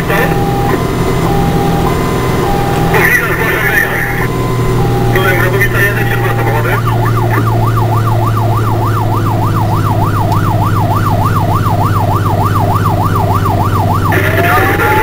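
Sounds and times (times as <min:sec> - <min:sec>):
siren yelp and wail: 0:00.0 - 0:15.0
truck engine drone: 0:00.0 - 0:15.0.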